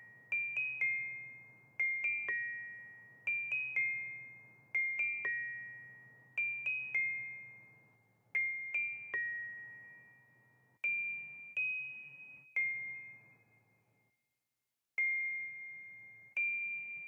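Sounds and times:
music box playing: 0:00.0 - 0:13.6.

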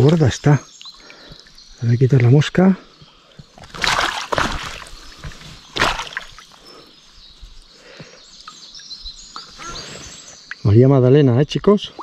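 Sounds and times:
water splashing: 0:00.0 - 0:01.5, 0:03.3 - 0:06.7
outdoor background: 0:00.0 - 0:12.0
faint bird chirps: 0:04.9 - 0:12.0.

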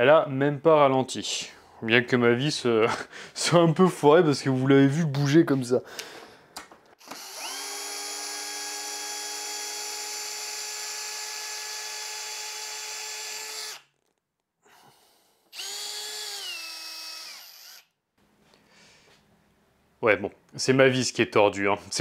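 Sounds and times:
cordless drill driving screw: 0:07.0 - 0:14.2, 0:15.5 - 0:17.9.

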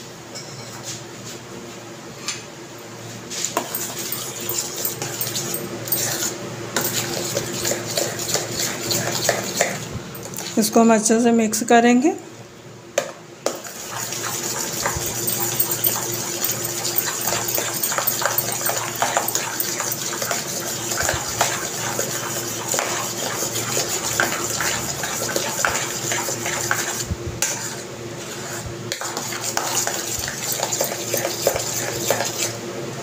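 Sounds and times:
steady background hum: 0:00.0 - 0:33.0
metal spoon scraping steel bowl: 0:03.6 - 0:10.4, 0:13.6 - 0:32.5.

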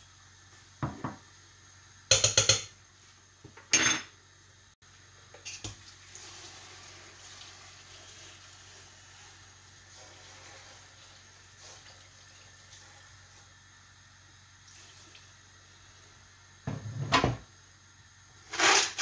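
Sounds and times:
water pouring into pot: 0:05.6 - 0:13.4.

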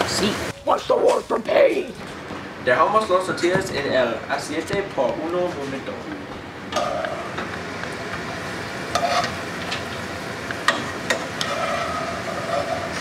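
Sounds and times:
frying sizzle in oil: 0:06.8 - 0:13.0.

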